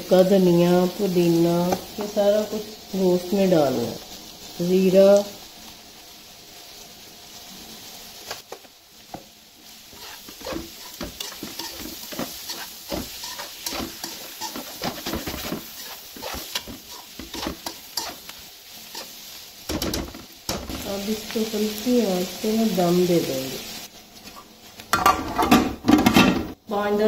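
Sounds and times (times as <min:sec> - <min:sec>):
food sizzling: 0:00.0 - 0:27.0
metal spoon scraping a wok: 0:09.9 - 0:20.7.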